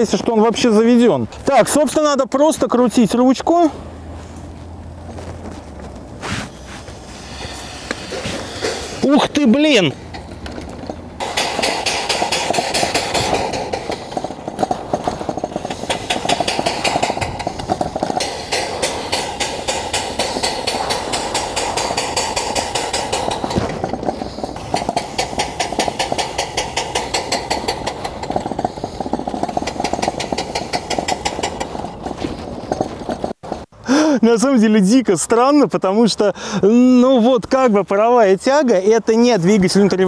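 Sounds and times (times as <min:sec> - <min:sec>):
steam engine chuffing: 0:06.9 - 0:10.4, 0:11.2 - 0:34.0.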